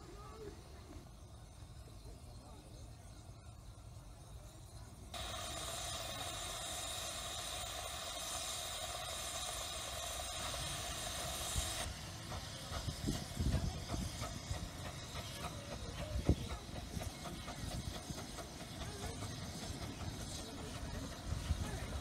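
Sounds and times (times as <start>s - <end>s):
steam hissing: 0.0s - 22.0s
locomotive knocks and clicks on track: 11.9s - 22.0s.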